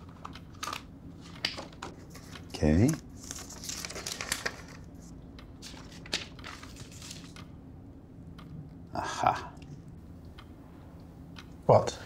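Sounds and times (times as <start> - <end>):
faint low hum: 0.0 - 12.0
notebook pages rustling: 3.2 - 4.9, 5.6 - 7.4.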